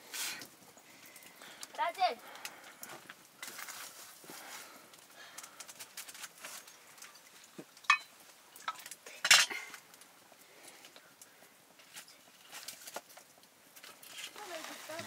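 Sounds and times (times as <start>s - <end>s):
metal utensils clinking on cookware: 7.8s - 9.7s.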